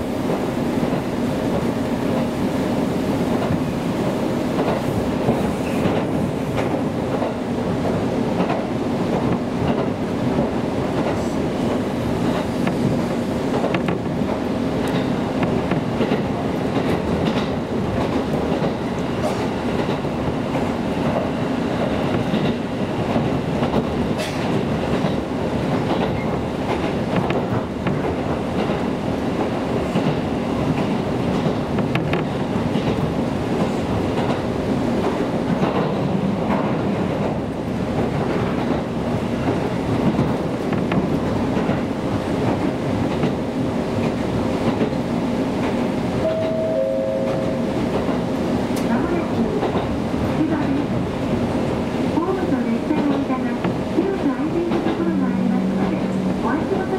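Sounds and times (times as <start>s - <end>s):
train wheels rumbling on rails: 0.0s - 56.9s.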